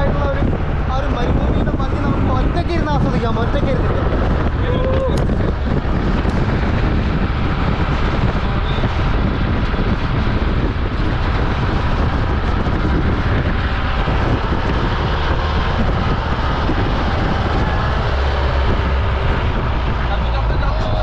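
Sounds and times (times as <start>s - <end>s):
jeep engine roaring: 0.0s - 21.0s
wind buffeting microphone: 0.0s - 21.0s.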